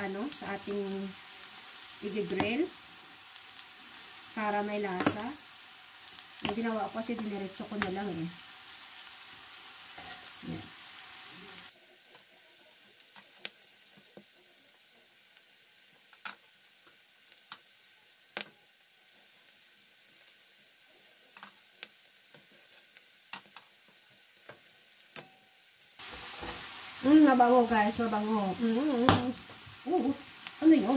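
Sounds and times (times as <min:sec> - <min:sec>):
meat sizzling on grill: 0:00.0 - 0:30.9.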